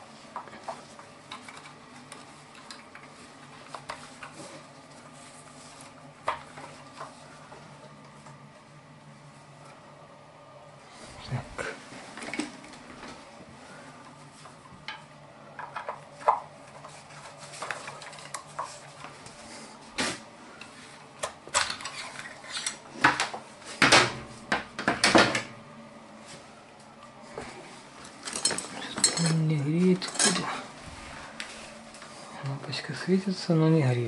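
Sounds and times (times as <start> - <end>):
metal hand tools clinking: 28.3 - 29.4, 30.0 - 30.5.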